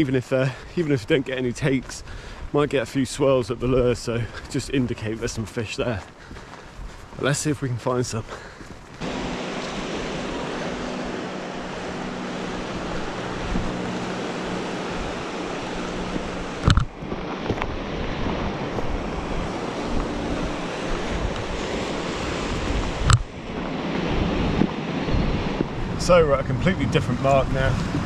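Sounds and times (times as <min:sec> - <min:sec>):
wind buffeting microphone: 0:08.2 - 0:28.0
sea waves washing in: 0:09.0 - 0:28.0.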